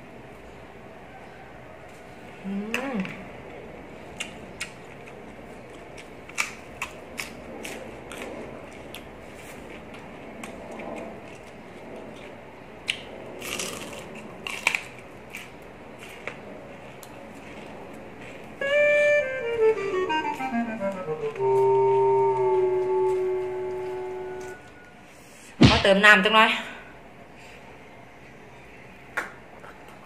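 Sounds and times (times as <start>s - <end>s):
chewing crisp raw vegetables: 4.0s - 18.6s.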